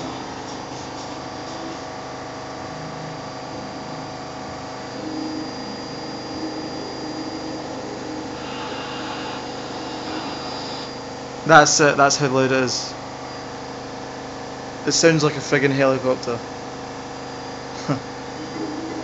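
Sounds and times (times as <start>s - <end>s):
washing machine spinning: 0.0s - 19.0s.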